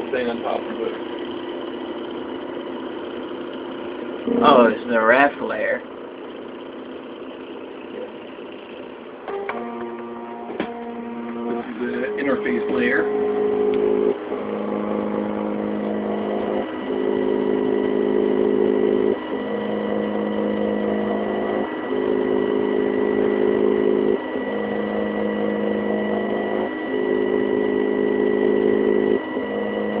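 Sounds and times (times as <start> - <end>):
stepper motors whining: 0.0 - 30.0.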